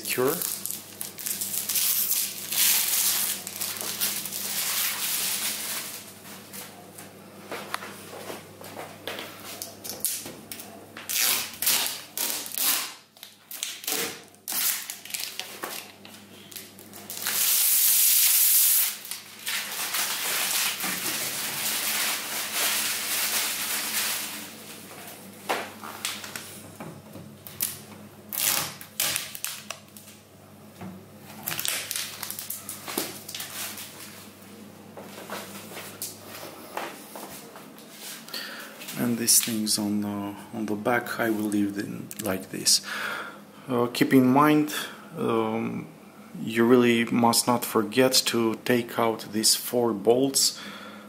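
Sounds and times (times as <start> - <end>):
plastic film peeling and crinkling: 0.2 - 6.6, 9.6 - 25.1, 27.4 - 30.2, 31.3 - 34.3.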